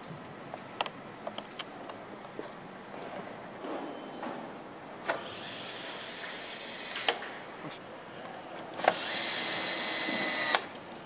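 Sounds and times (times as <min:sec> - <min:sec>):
power screwdriver motor whining: 0:05.2 - 0:07.2, 0:08.8 - 0:10.7.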